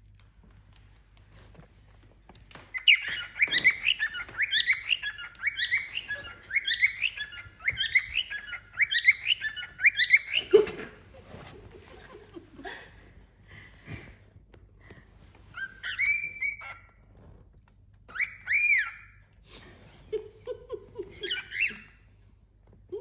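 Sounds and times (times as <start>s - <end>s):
cockatiel singing chirpy phrase: 2.8s - 10.4s.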